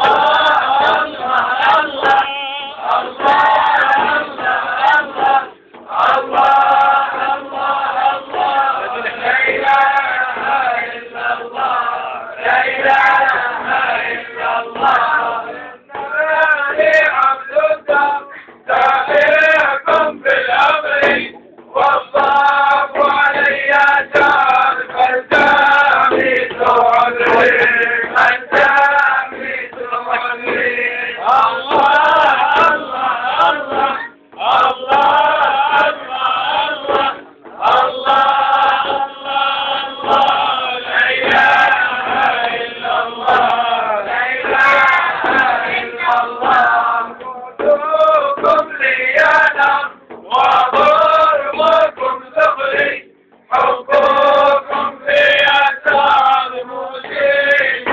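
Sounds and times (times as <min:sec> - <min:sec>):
frame drums: 0:00.0 - 0:57.9
men chanting in unison: 0:00.0 - 0:57.9.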